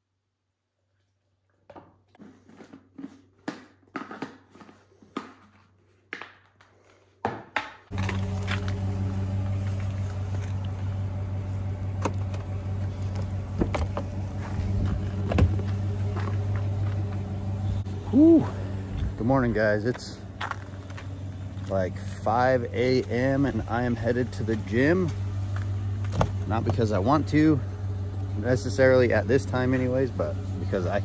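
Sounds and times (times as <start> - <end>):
vehicle hum from inside cab: 7.9 - 31.0.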